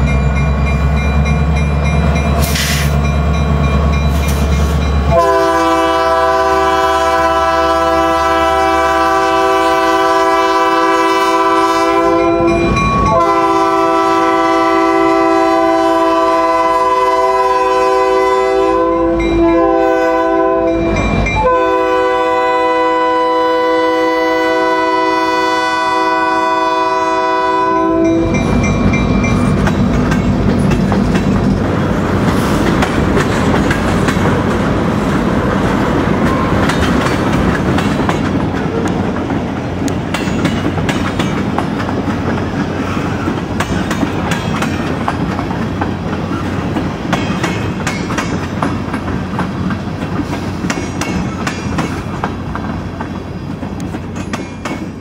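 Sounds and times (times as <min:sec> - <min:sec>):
train wheels clattering on rails: 0:00.0 - 0:18.0, 0:28.0 - 0:55.0
diesel engines rumbling: 0:00.0 - 0:55.0
locomotive horn blasts: 0:05.1 - 0:28.4.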